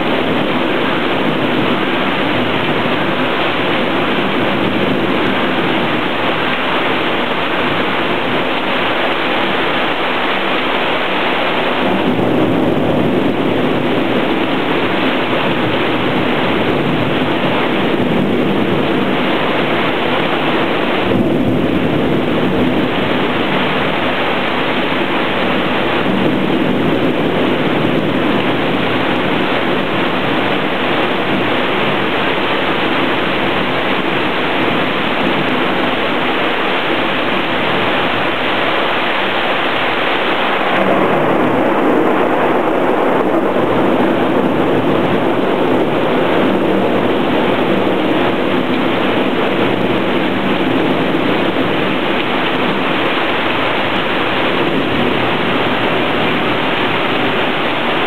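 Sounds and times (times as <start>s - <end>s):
thunder rumbling: 0.0s - 58.0s
torrential rain: 0.0s - 58.0s.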